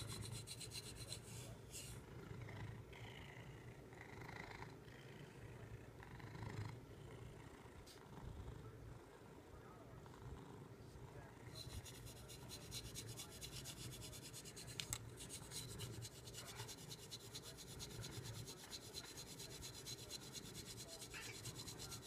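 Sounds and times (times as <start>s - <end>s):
back scratcher rubbing cat fur: 0.0s - 2.0s, 11.5s - 22.0s.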